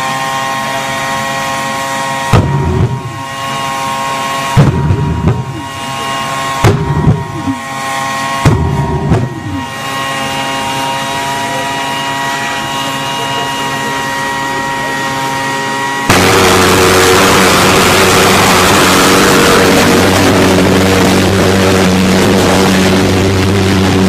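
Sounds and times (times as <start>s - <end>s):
jet engine high whine: 0.0s - 24.0s
loud whooshing flame surges: 2.2s - 10.2s, 16.1s - 24.0s.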